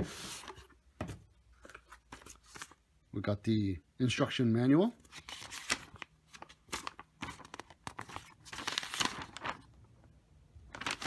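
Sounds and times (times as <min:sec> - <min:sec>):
paper manual rustling and crinkling: 0:01.6 - 0:02.8, 0:05.0 - 0:09.8, 0:10.7 - 0:11.0.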